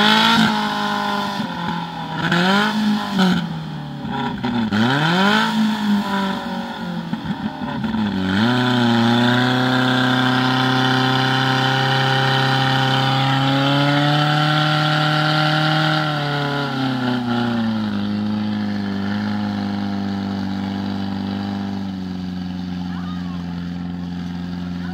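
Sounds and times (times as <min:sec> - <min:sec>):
pump engine running at high revs: 0:00.0 - 0:24.9.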